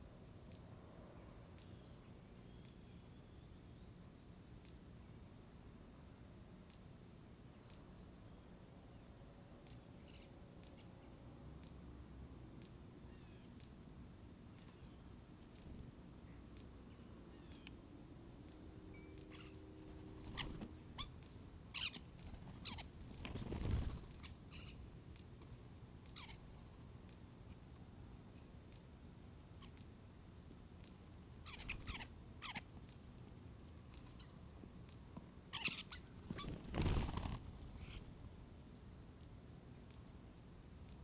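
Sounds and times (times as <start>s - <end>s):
high bird chirps and squeaks: 9.6s - 10.9s, 18.6s - 24.8s, 26.1s - 26.4s, 31.4s - 32.6s, 35.5s - 38.1s
starling calls: 10.1s - 11.0s, 18.6s - 24.8s, 26.2s - 26.4s, 31.4s - 32.6s, 35.5s - 38.1s.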